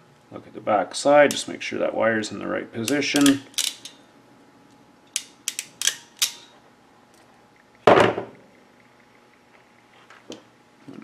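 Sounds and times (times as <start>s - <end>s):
crimp tool ratchet clicks: 2.9s - 4.0s, 5.1s - 6.5s.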